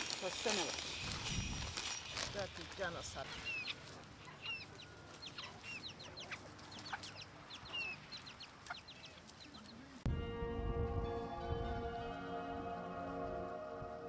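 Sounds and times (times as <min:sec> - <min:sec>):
chickens peeping and clucking: 0:02.2 - 0:10.1
background music with held notes: 0:10.1 - 0:14.0.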